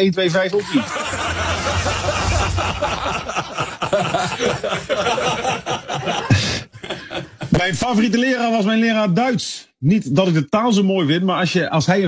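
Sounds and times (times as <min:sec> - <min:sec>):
people laughing: 0:00.6 - 0:07.8.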